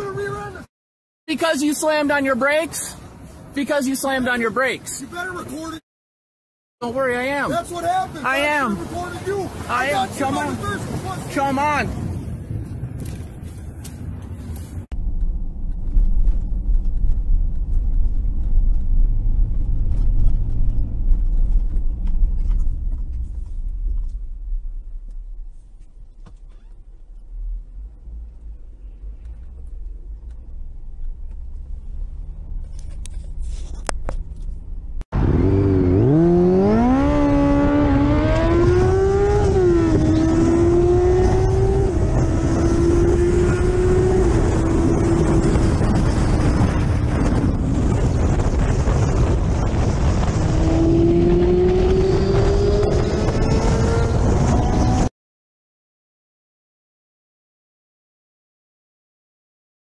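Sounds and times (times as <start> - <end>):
car driving rumble: 6.8 - 55.1
motorcycle engine accelerating: 35.2 - 55.1.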